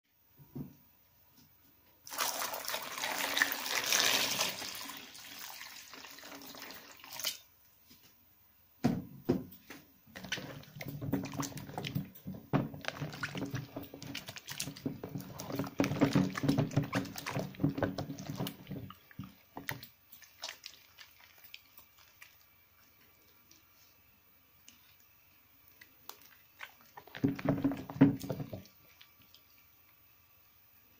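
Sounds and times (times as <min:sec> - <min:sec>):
water pouring into a bowl: 0:02.0 - 0:07.4
hands squishing wet soap: 0:09.6 - 0:30.0
water splashing: 0:10.1 - 0:23.6.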